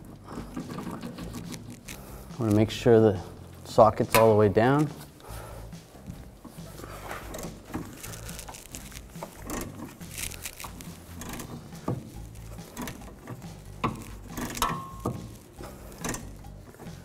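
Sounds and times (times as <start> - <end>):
ratchet metallic clicks: 7.3 - 17.0.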